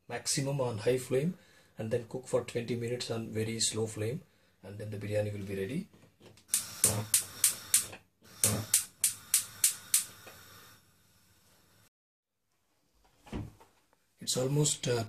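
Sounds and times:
faint gas hiss: 0:06.5 - 0:11.9.

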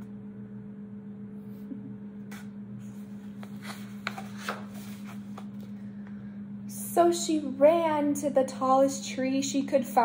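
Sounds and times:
steady low hum: 0:00.0 - 0:10.0
book page rustling: 0:02.9 - 0:05.8.

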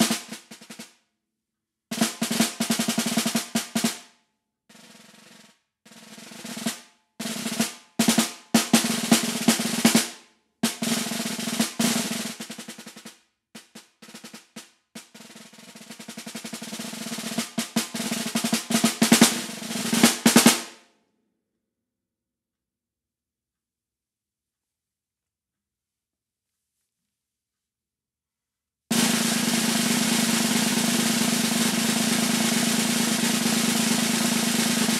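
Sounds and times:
snare drum rolls and strokes: 0:00.0 - 0:01.0, 0:01.9 - 0:04.1, 0:04.7 - 0:20.8, 0:28.9 - 0:34.9.

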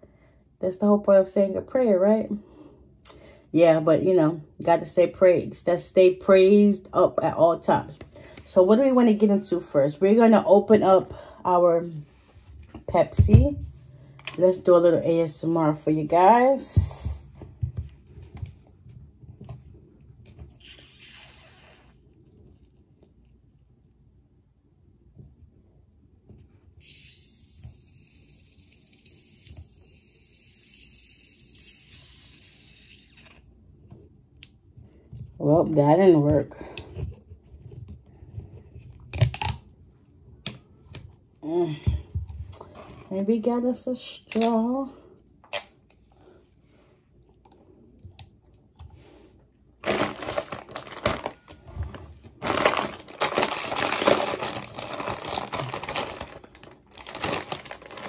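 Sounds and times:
plastic chip bag crinkling: 0:49.8 - 0:58.0.

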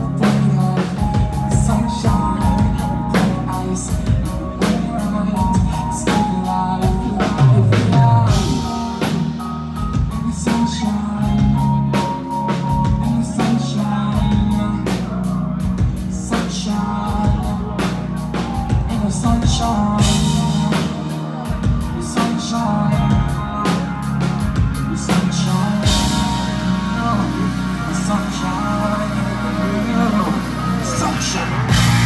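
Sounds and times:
heavy bass line: 0:00.0 - 0:32.0
live concert music over pa: 0:00.0 - 0:32.0
vocals: 0:00.0 - 0:32.0
pounding drum beat: 0:30.8 - 0:32.0.

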